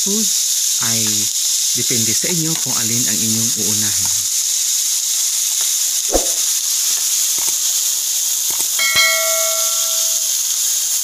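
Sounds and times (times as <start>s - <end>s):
squid sizzling in hot oil: 0.0s - 11.0s
metallic clank: 8.8s - 10.4s.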